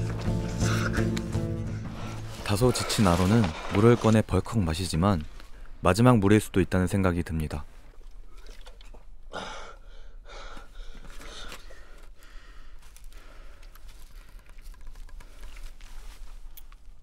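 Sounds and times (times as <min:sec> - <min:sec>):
man breathing heavily with gasps: 0:00.3 - 0:02.4, 0:09.3 - 0:14.6.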